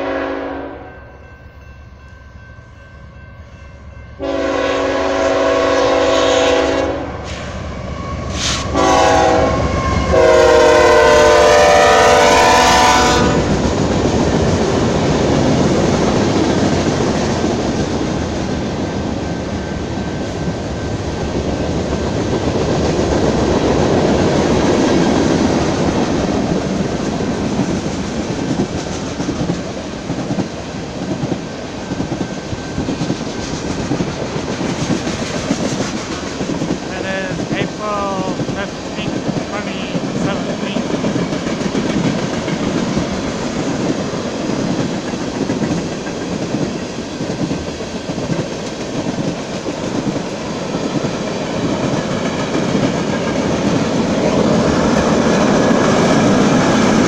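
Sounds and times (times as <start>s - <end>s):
locomotive horn blasts: 0.0s - 1.0s, 4.2s - 7.2s, 8.7s - 13.5s
wheels clacking on rails: 12.0s - 57.0s.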